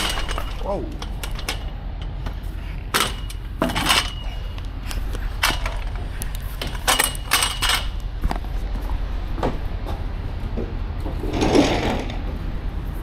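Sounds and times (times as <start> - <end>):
metallic clanks and rattles: 0.0 - 8.4
steady low hum: 0.0 - 13.0.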